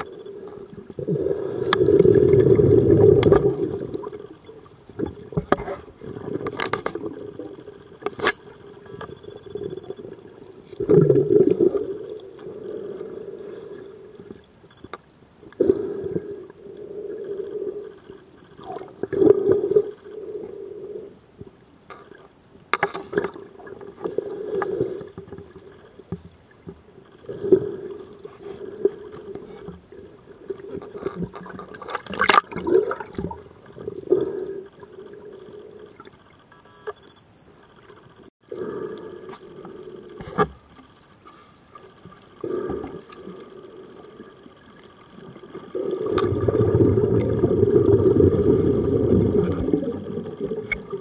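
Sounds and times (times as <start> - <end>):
muffled underwater bubbles gurgling: 45.3 - 51.0.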